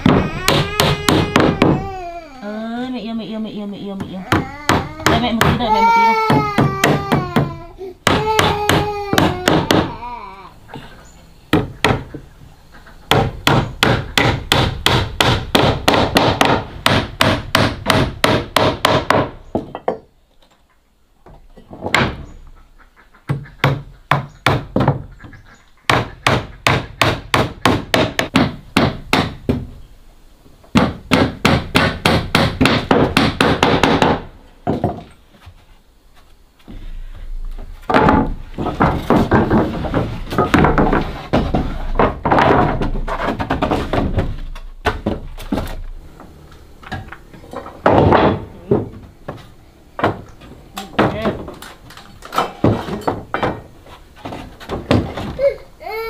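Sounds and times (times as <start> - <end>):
small child whining: 0.0 - 2.8, 4.1 - 10.7, 55.2 - 56.0
hammer driving nails into wood: 13.1 - 19.4.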